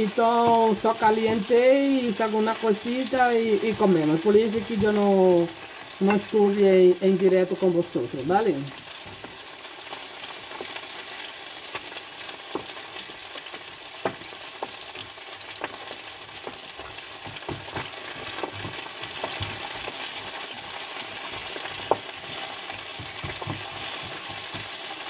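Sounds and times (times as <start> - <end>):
fish frying in a pan: 0.0 - 25.0.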